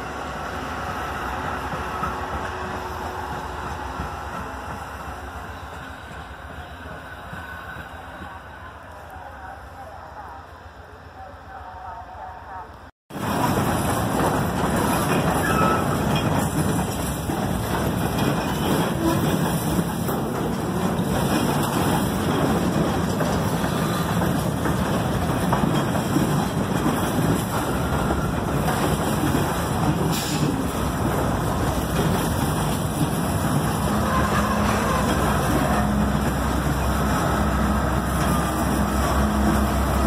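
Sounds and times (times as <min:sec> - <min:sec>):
freight train rolling past: 0:00.0 - 0:40.0
steel wheels rattling on rails: 0:13.1 - 0:40.0.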